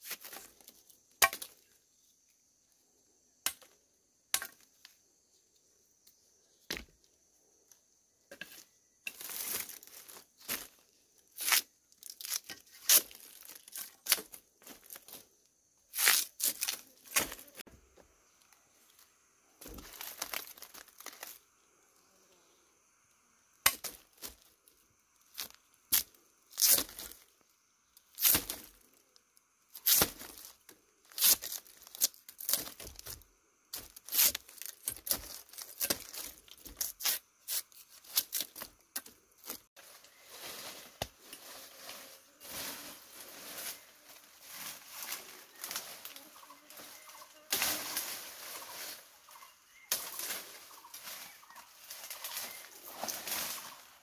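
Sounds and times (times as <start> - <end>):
faint steady high tone: 41.8 - 49.9.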